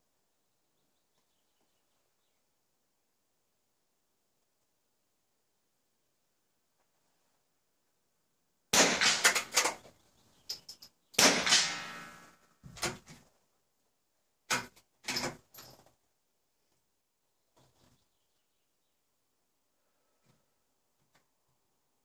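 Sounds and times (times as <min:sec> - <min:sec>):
rifle shots: 0:08.8 - 0:09.8, 0:11.2 - 0:12.4.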